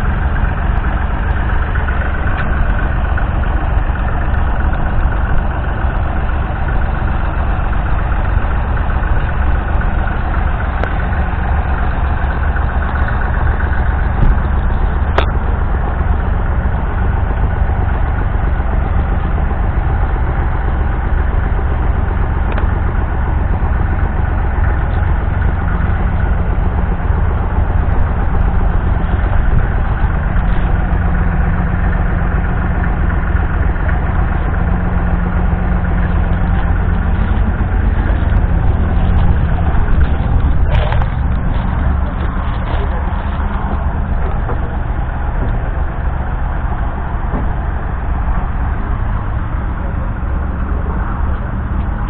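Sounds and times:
tractor diesel engine idling: 0.0s - 52.0s.

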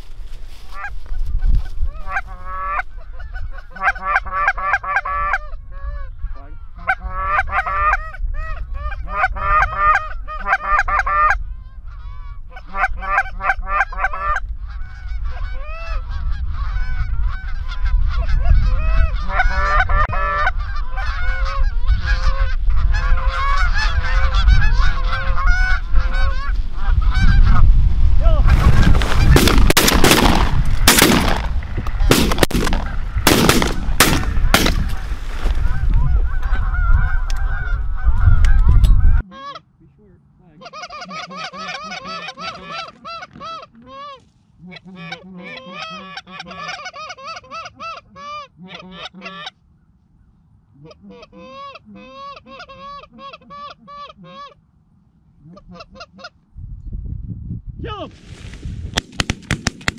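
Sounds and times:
geese honking and clucking: 0.6s - 50.1s, 50.7s - 54.6s, 55.3s - 56.5s
shotgun blasts: 29.3s - 35.0s.

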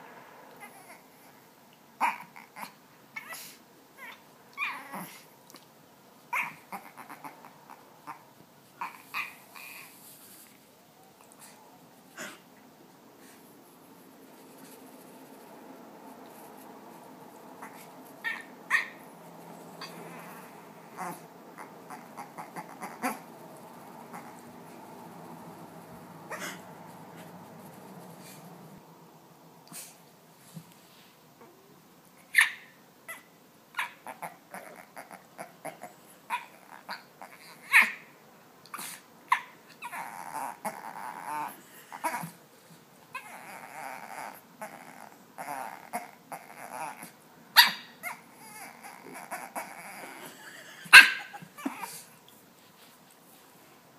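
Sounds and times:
puppy yelping: 2.0s - 5.2s, 6.3s - 8.2s, 8.8s - 9.9s, 17.6s - 19.1s, 20.9s - 24.4s, 26.3s - 27.3s, 32.3s - 38.1s, 43.1s - 52.1s
puppy grunting: 19.8s - 24.8s, 26.3s - 26.8s, 33.8s - 38.0s, 48.0s - 52.1s
puppy call: 26.2s - 26.9s, 32.3s - 38.1s.

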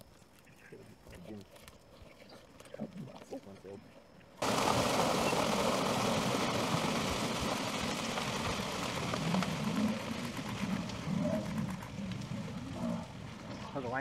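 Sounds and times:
hooves pounding: 4.4s - 14.0s
water splashing: 4.4s - 14.0s.

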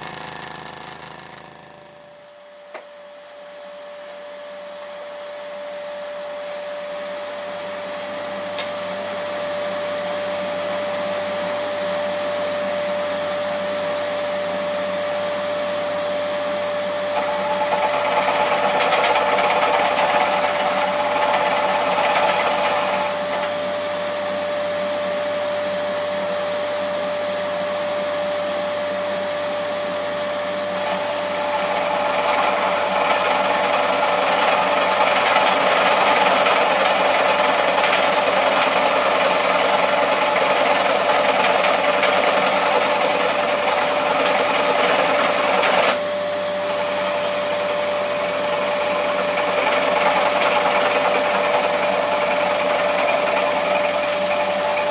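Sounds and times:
scroll saw whining: 0.0s - 12.6s, 13.2s - 25.3s, 28.7s - 54.9s
saw blade cutting aluminium: 17.1s - 23.6s, 30.8s - 46.0s, 49.0s - 54.9s.

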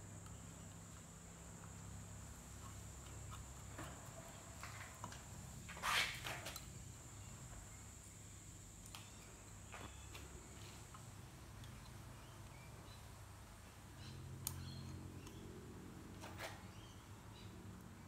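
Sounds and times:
metal scrape: 5.7s - 6.4s.

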